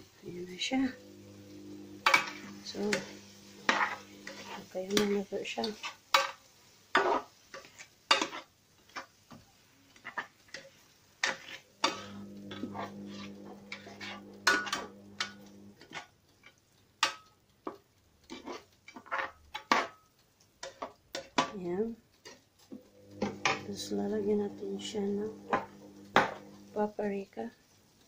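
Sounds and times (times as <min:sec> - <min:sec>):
steady low hum: 0:00.0 - 0:05.3, 0:11.7 - 0:15.8, 0:22.7 - 0:27.0
utensil scraping and tapping pot: 0:00.7 - 0:26.9.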